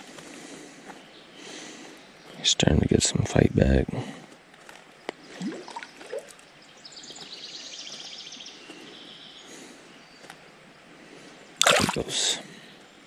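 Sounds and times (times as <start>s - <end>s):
faint water sounds: 5.2s - 13.0s.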